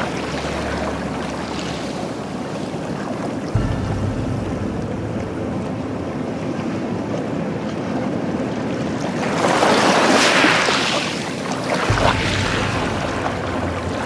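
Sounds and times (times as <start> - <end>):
waves washing over pebble beach: 6.2 - 14.0.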